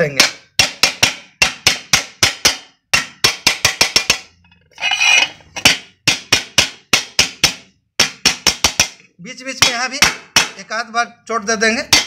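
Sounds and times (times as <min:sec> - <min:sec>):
wooden block striking metal lid: 0:00.1 - 0:09.0.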